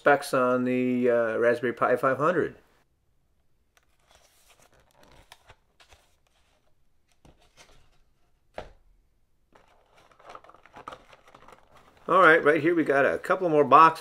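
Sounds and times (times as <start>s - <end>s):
cardboard packaging rustling: 3.8s - 8.6s, 9.5s - 13.4s.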